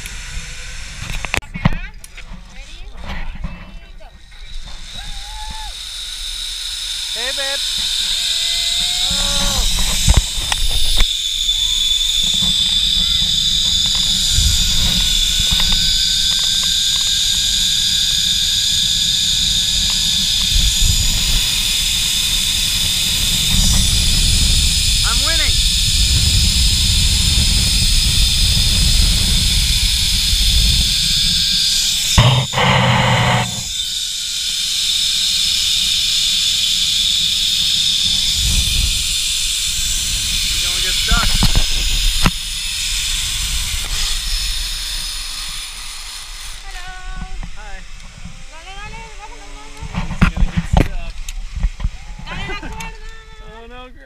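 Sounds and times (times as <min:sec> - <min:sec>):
zipline pulleys whining: 0:00.0 - 0:01.4, 0:02.4 - 0:53.7
wind on microphone: 0:07.8 - 0:33.9, 0:37.0 - 0:45.7.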